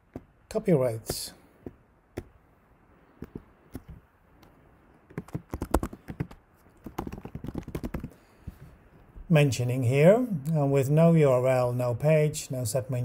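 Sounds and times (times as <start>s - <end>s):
computer keyboard typing: 5.1s - 8.2s.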